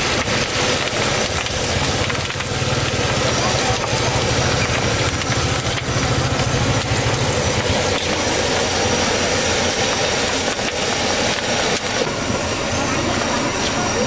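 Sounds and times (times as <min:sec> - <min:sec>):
small engine idling: 0:00.0 - 0:14.0
street noise hiss: 0:00.0 - 0:14.0.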